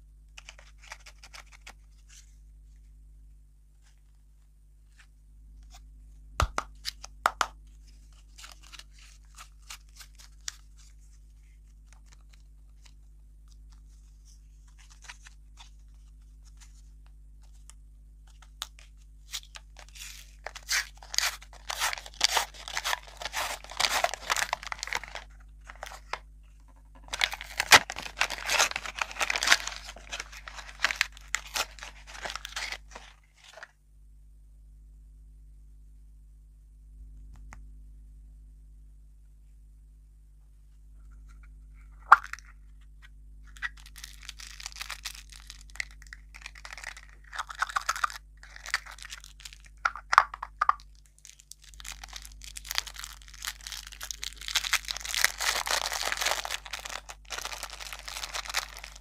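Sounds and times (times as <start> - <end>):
plastic wrapper crinkling: 0.4 - 2.3, 7.8 - 26.2, 27.0 - 33.7, 43.4 - 59.0.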